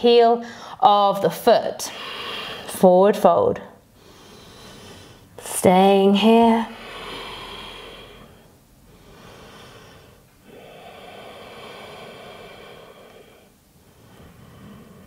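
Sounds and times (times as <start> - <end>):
woman breathing slowly: 1.9 - 2.7, 3.9 - 5.4, 6.7 - 15.0.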